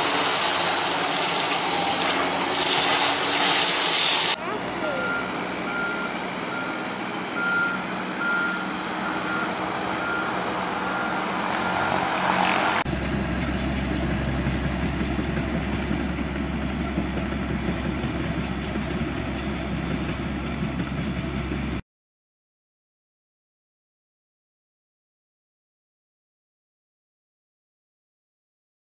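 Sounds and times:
excavator diesel engine droning: 0.0s - 21.8s
heavy equipment running: 0.0s - 21.8s
backup alarm beeping: 4.9s - 11.9s.

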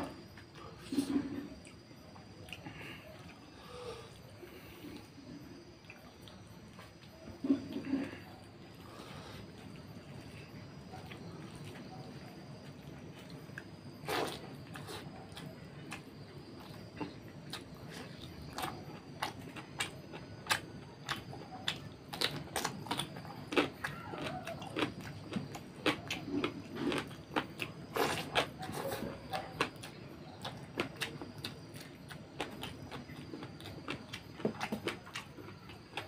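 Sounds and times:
man chewing and lip-smacking: 11.0s - 36.0s.

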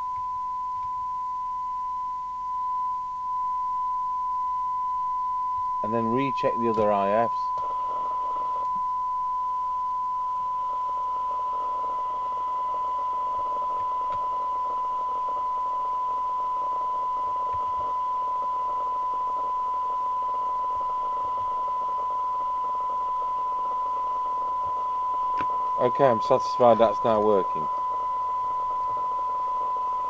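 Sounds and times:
steady test tone: 0.0s - 30.0s.

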